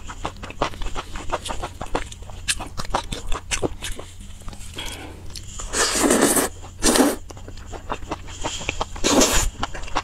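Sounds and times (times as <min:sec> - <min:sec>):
wet chewing: 0:00.0 - 0:10.0
biting or slurping: 0:04.8 - 0:10.0.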